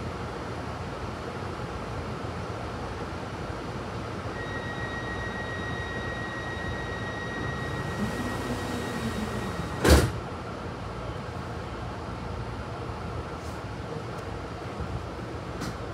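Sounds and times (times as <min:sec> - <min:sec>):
train wheels rumbling on rail: 0:04.4 - 0:10.5, 0:13.2 - 0:15.9.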